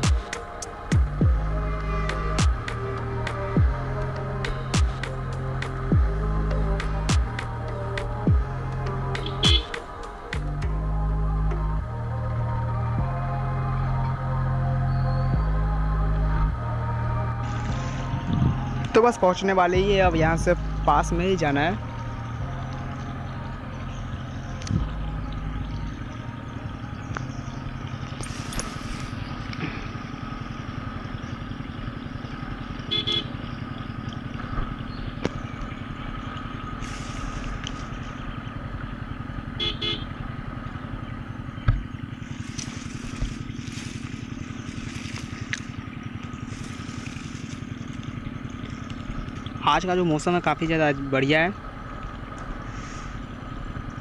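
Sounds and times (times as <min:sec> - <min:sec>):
motorcycle engine running: 0:00.0 - 0:54.0
horn short beeps: 0:09.2 - 0:09.8, 0:32.9 - 0:33.3, 0:39.6 - 0:40.1.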